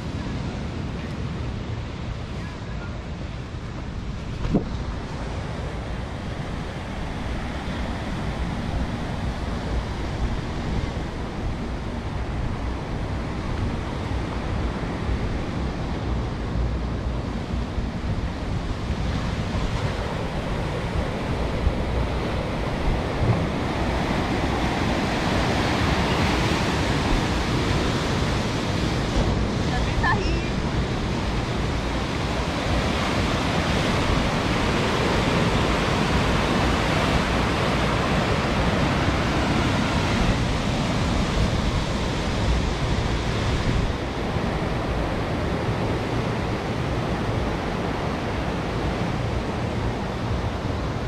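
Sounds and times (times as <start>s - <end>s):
ocean surf washing in: 0.0s - 51.0s
wind on microphone: 0.0s - 51.0s.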